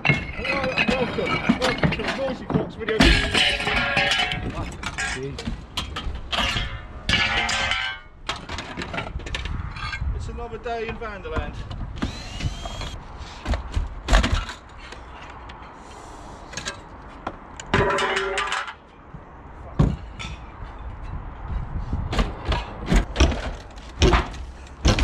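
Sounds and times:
timber and metal cracking: 0.0 - 9.5, 22.2 - 25.0
scraping: 0.0 - 10.1.

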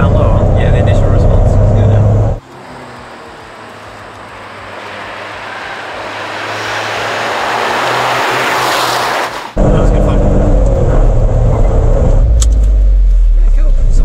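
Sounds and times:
car engine from inside cabin: 0.0 - 3.8, 9.6 - 14.0
car engine passing by: 0.0 - 14.0.

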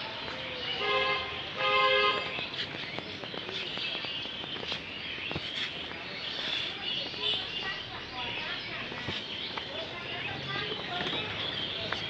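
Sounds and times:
vehicle horn toot: 0.8 - 2.3.

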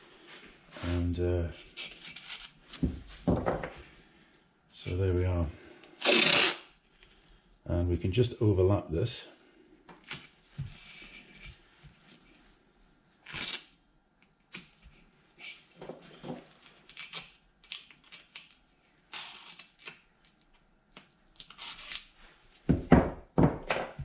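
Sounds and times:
tape tearing: 1.8 - 2.8, 6.0 - 6.8, 13.2 - 13.8, 16.5 - 22.2
masking tape pulled off roll: 6.0 - 7.0, 13.2 - 13.8, 16.5 - 20.4, 21.0 - 22.2.

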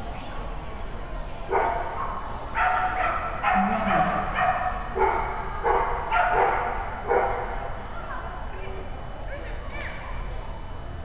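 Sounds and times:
dog barking: 1.5 - 7.5.

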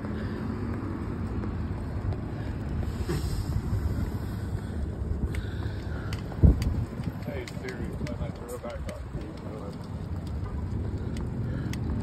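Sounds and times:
wind buffeting the microphone: 0.6 - 12.0
faint bicycle clicks: 4.0 - 12.0.

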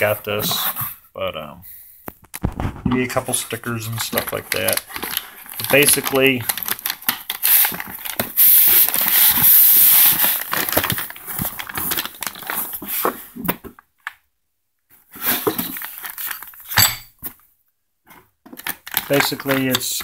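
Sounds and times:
plastic packaging crinkling: 4.0 - 12.9.

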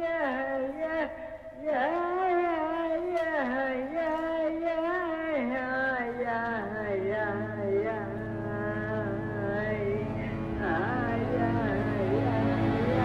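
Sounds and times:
voices singing slow melody: 6.0 - 13.0
low buzzing drone: 8.4 - 13.0.

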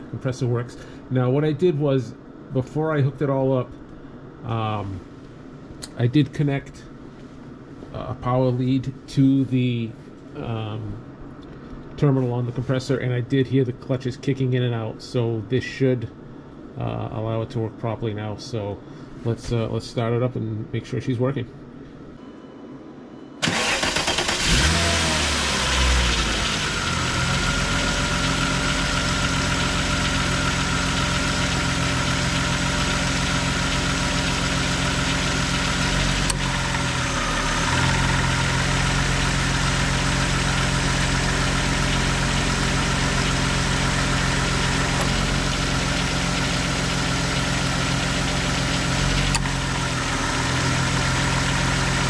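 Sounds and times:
engine cranking and starting: 23.4 - 27.2
engine idling: 23.4 - 52.0.

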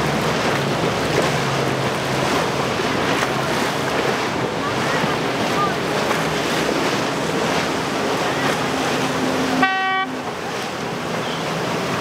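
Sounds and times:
boat engines: 0.0 - 12.0
waves washing: 0.0 - 12.0
wind: 0.0 - 12.0
short horn toot: 9.6 - 10.2.

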